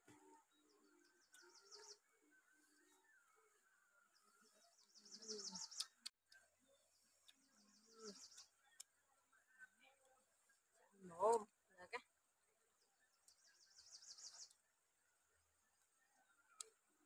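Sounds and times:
bird chirping: 0:00.0 - 0:09.6, 0:12.7 - 0:14.8.

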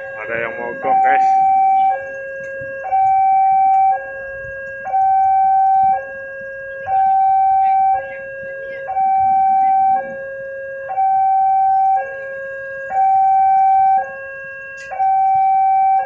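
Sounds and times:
level crossing two-tone alarm: 0:00.0 - 0:16.0.

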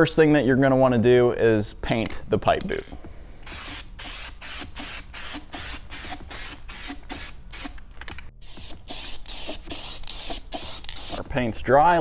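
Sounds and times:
aerosol spray can hissing: 0:08.4 - 0:11.2.

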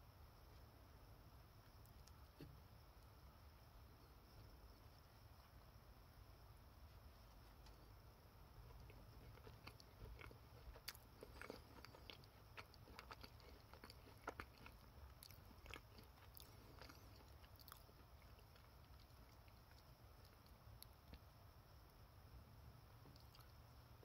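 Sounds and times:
person chewing pastry: 0:08.5 - 0:21.3, 0:23.0 - 0:23.7.

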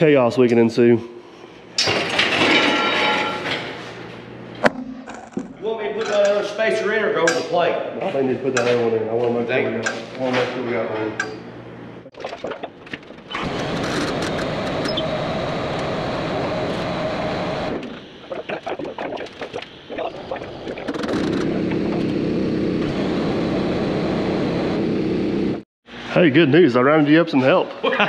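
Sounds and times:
motor humming: 0:13.3 - 0:25.6.

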